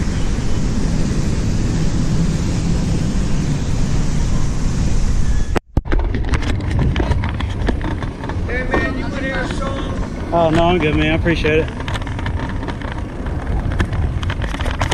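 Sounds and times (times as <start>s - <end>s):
wind buffeting microphone: 0.0s - 14.9s.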